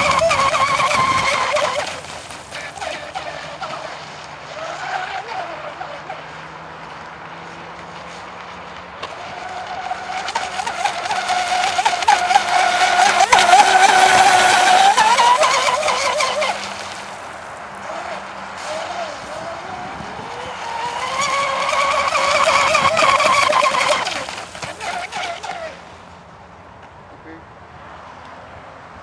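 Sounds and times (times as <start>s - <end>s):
model speedboat motor whining: 0.0s - 26.1s.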